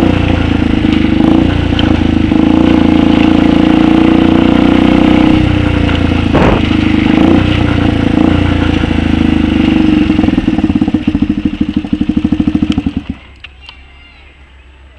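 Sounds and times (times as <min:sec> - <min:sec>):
motorcycle engine idling: 0:00.0 - 0:14.9
short clunk: 0:06.3 - 0:06.7.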